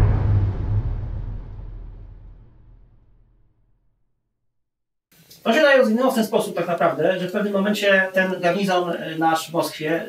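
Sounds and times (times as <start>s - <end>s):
cannon shot rumble: 0.0s - 3.4s.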